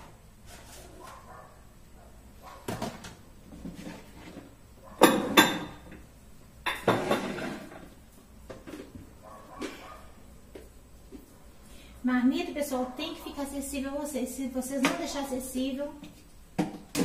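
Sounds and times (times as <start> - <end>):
containers knocking on cabinet shelves: 2.6 - 4.0, 5.0 - 6.0, 16.6 - 17.0.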